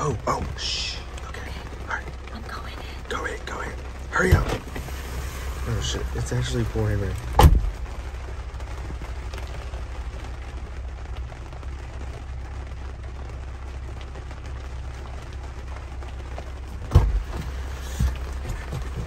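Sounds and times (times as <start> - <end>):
car engine idling: 0.0 - 19.0
heavy rain on car roof: 0.0 - 19.0
loud thump: 7.3 - 7.8, 16.9 - 17.5.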